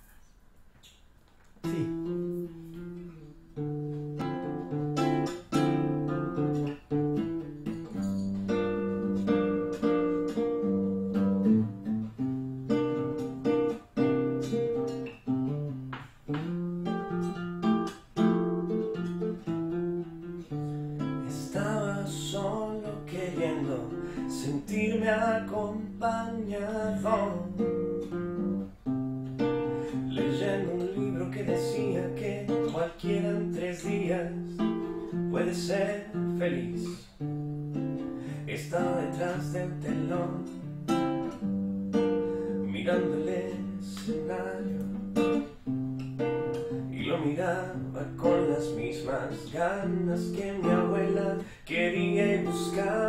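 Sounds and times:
acoustic guitar strumming: 0:01.6 - 0:53.0
man singing: 0:21.2 - 0:27.9, 0:29.8 - 0:37.1, 0:38.2 - 0:40.7, 0:42.5 - 0:45.3, 0:46.7 - 0:53.0.

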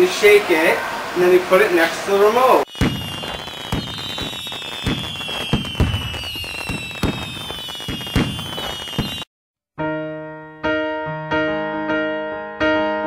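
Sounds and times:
fireworks bangs and crackles: 0:02.3 - 0:09.3
falling high whistling tone: 0:02.5 - 0:09.3.

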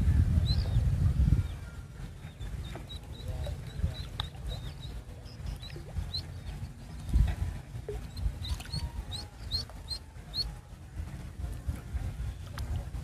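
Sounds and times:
low rumble: 0:00.0 - 0:13.0
duckling peeping: 0:02.3 - 0:07.3, 0:08.0 - 0:10.6.

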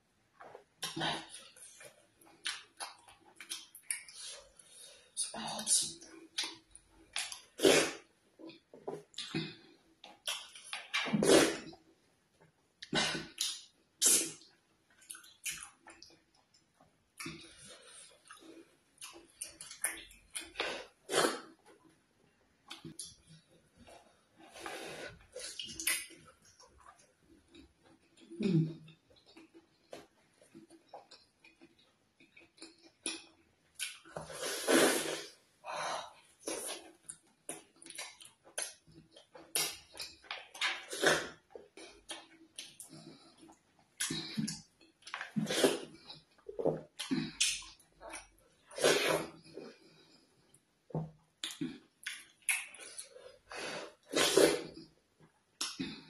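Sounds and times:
loud slurp: 0:34.3 - 0:35.3.

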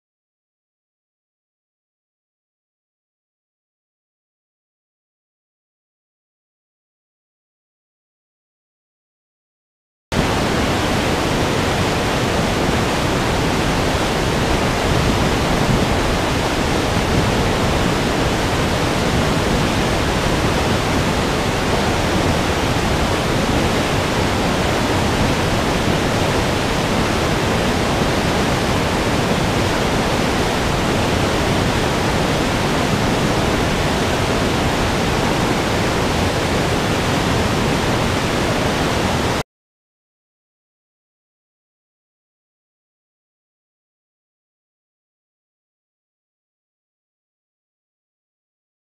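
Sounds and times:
waterfall rushing: 0:10.2 - 0:39.4.

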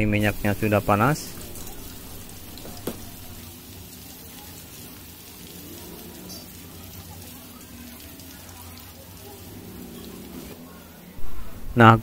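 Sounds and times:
garlic sizzling in hot oil: 0:00.2 - 0:08.0.

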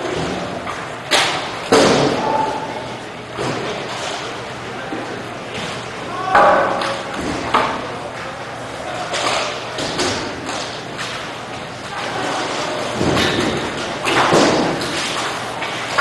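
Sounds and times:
roller hockey thuds and knocks: 0:12.8 - 0:16.0.

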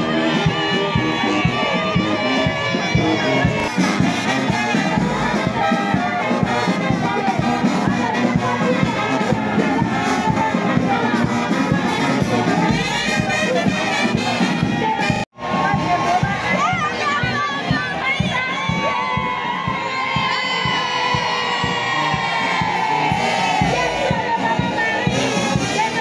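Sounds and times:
brass band playing a march: 0:00.0 - 0:26.0
crowd noise: 0:00.0 - 0:26.0
steady drumbeat: 0:00.0 - 0:26.0.

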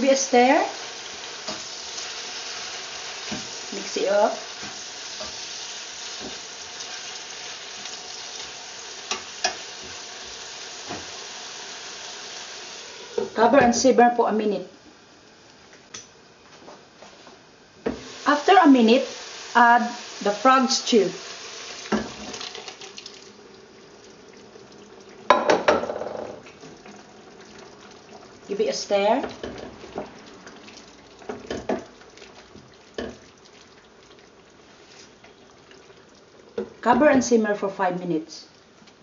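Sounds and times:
vegetables sizzling in a pan: 0:00.0 - 0:14.6, 0:17.1 - 0:23.5, 0:24.1 - 0:35.4
spatula knocking on pan: 0:25.3 - 0:26.3.

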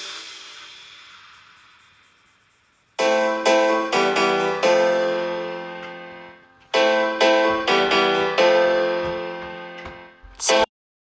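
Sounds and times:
piano chords ringing: 0:03.0 - 0:10.7.

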